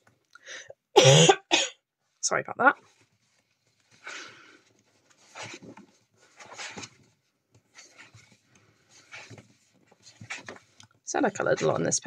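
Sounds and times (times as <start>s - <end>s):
paper pages turning: 2.8s - 12.0s.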